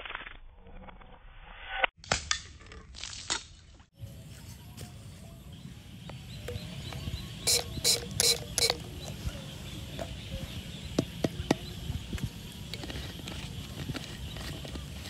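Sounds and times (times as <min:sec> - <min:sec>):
sharp clicks: 0:06.1 - 0:09.0
spray bottle squirts: 0:07.5 - 0:08.8.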